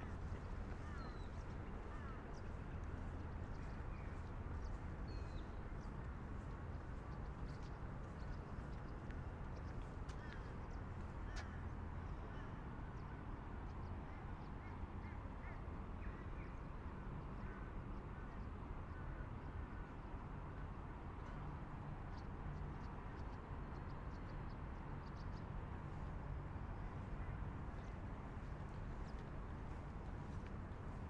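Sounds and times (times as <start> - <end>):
low outdoor rumble: 0.0 - 13.8.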